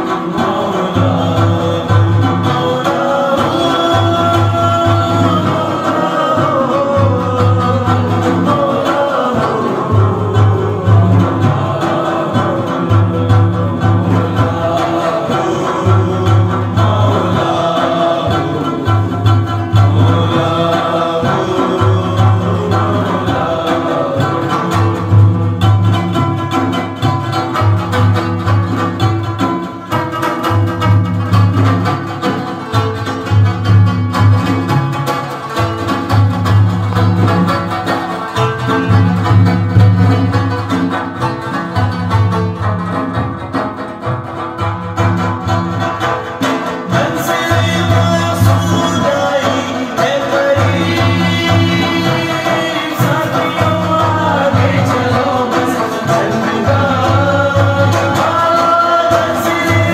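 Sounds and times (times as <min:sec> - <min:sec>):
man singing: 0:00.0 - 0:26.4, 0:46.6 - 0:59.9
frame drum beat: 0:00.0 - 0:59.9
plucked lute: 0:00.0 - 0:59.9.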